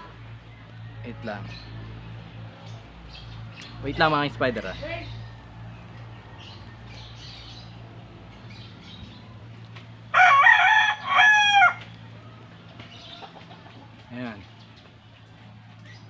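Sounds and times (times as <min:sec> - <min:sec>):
rooster crowing: 0:10.1 - 0:12.0.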